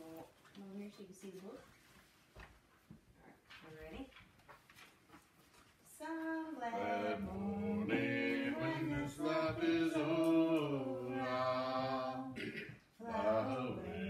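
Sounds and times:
voices singing a hymn: 6.6 - 14.0.

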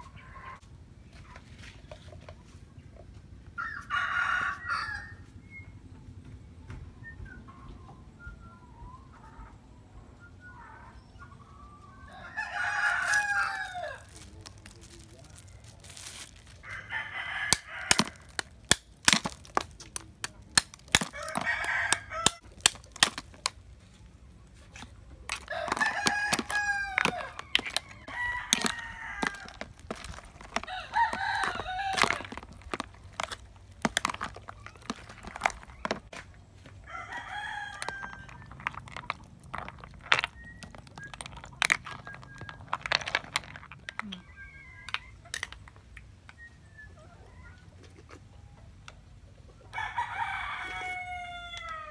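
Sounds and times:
rooster crowing: 3.6 - 5.3, 11.8 - 14.2, 16.6 - 18.3, 21.2 - 22.4, 25.4 - 29.7, 30.6 - 32.4, 36.8 - 38.5, 49.7 - 51.9
plastic spoon stirring ice: 12.5 - 36.3, 37.0 - 44.2
ice cubes dropping into plastic tub: 17.8 - 23.5, 25.3 - 36.2, 37.7 - 44.0.

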